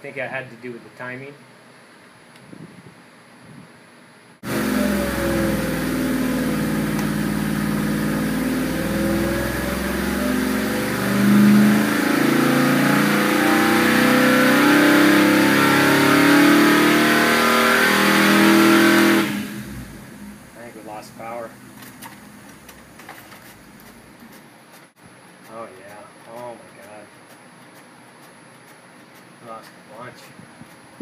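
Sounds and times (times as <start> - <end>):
engine pulling on dyno: 4.4 - 24.1.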